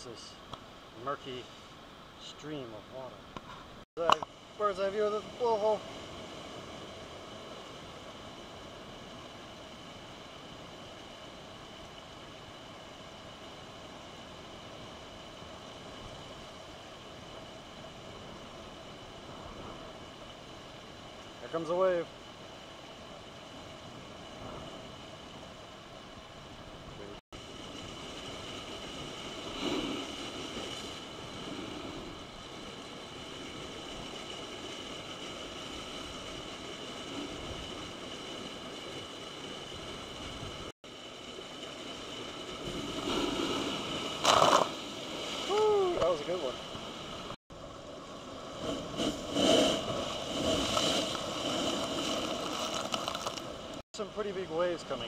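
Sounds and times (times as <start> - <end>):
ocean wave splashing over rocks: 4.0 - 55.0
sea water splashing through blowhole: 48.3 - 53.8.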